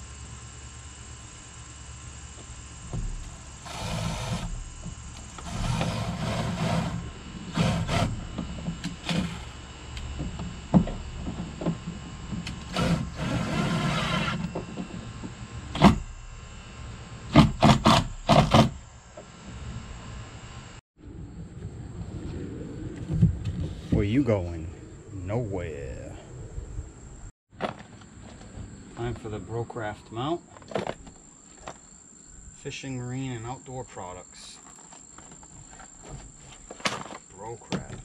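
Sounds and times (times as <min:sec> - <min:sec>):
cordless drill running: 0:00.0 - 0:20.8.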